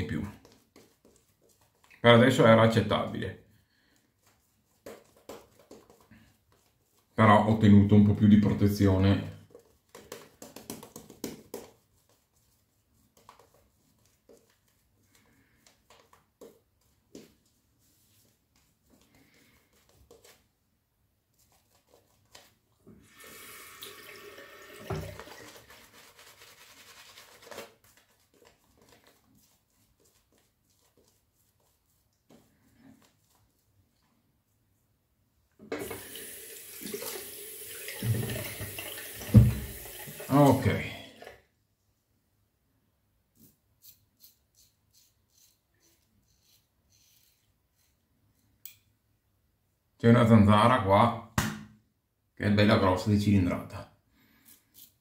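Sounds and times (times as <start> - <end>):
tap water running into sink: 23.0 - 25.9, 35.7 - 41.4.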